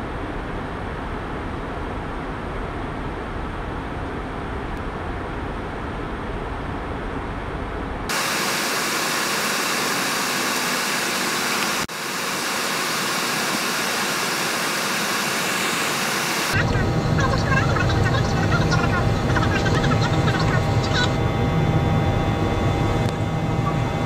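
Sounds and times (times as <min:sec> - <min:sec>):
airliner cabin rumble: 0:13.2 - 0:24.0.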